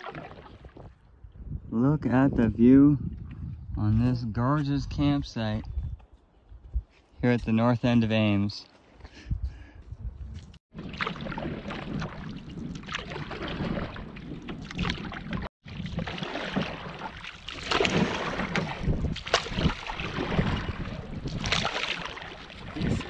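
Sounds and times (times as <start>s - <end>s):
water lapping at hull: 0.0s - 1.4s, 10.7s - 23.0s
paddle strokes: 10.8s - 23.0s.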